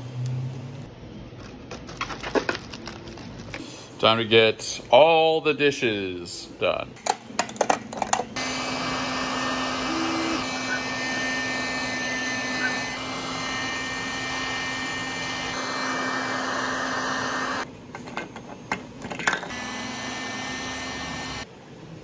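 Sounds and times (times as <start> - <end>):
heat gun blowing: 8.4 - 17.7, 19.5 - 21.5.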